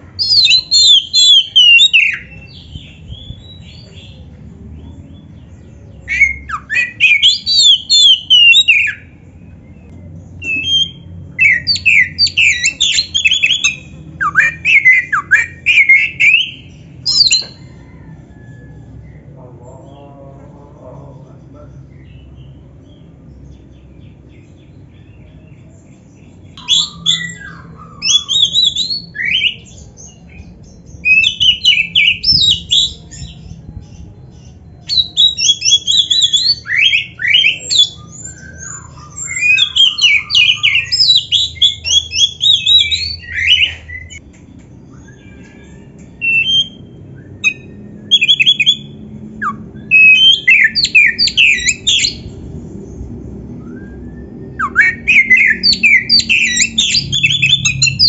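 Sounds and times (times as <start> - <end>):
magpie-robin singing: 0.0 - 20.2, 21.3 - 58.0.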